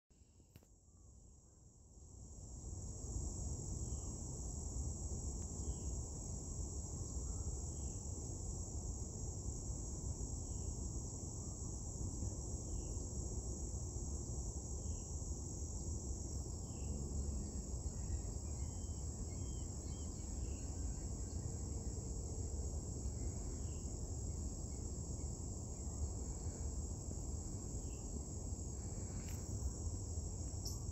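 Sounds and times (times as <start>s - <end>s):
crickets chirping: 0.2s - 30.9s
low steady rumble: 13.2s - 30.9s.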